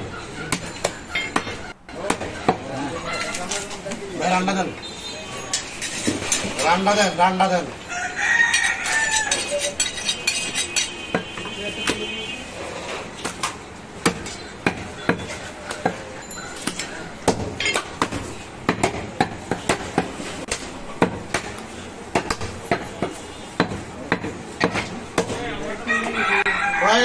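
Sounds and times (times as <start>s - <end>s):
voices: 0.0s - 27.0s
cleaver chopping meat: 13.2s - 16.0s.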